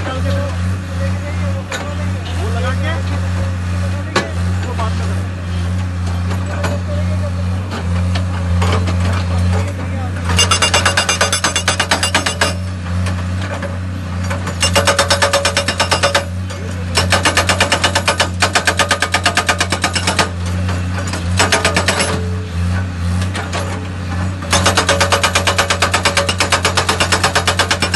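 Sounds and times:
diesel engine droning: 0:00.0 - 0:14.8, 0:20.2 - 0:24.7
hydraulic breaker hammering rock: 0:07.8 - 0:27.9.

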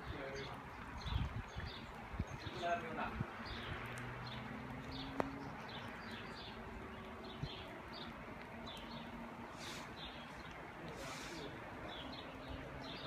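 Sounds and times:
outdoor hiss: 0:09.1 - 0:11.7.

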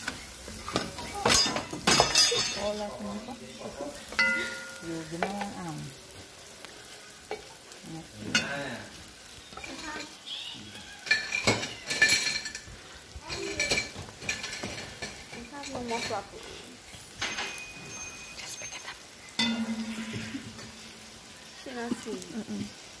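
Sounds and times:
metal cup scraping on hot pan: 0:09.5 - 0:21.6.

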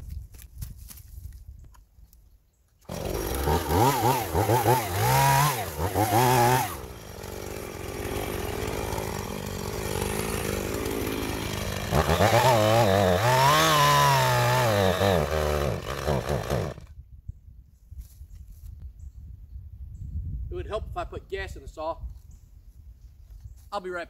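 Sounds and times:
chainsaw revving: 0:02.9 - 0:16.9.

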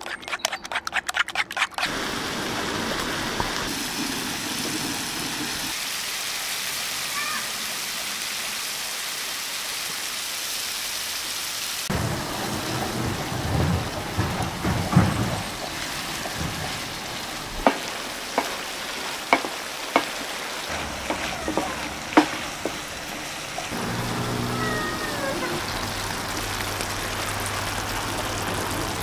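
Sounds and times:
food sizzling in a pan: 0:03.9 - 0:12.0, 0:15.5 - 0:29.0
wooden spoon scraping a pan: 0:17.6 - 0:22.9
spoon knocking against pan: 0:19.3 - 0:20.2, 0:20.8 - 0:22.8.

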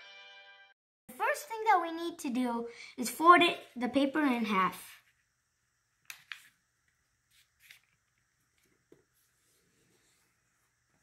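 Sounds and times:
paper rustling: 0:07.3 - 0:08.0.

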